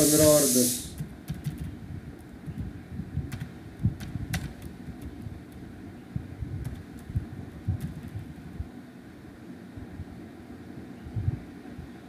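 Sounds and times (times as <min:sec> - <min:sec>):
computer keyboard and mouse clicks: 0:03.3 - 0:05.1.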